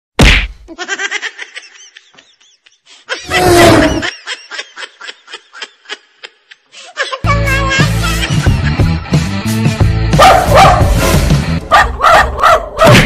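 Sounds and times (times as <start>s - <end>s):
snickering laughter: 0.7s - 7.2s, 7.8s - 9.0s
music: 7.2s - 12.6s.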